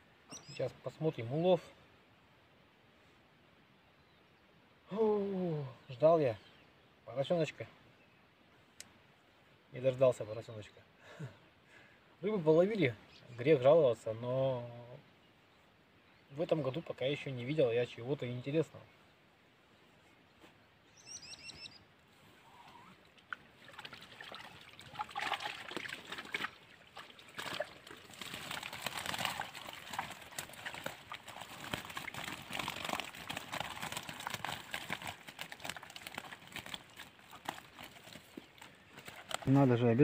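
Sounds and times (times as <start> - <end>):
bird chirping: 0.0 - 0.9, 3.7 - 4.6, 14.9 - 23.1
water splashing and trickling: 22.9 - 39.6
net rustling: 27.4 - 39.5.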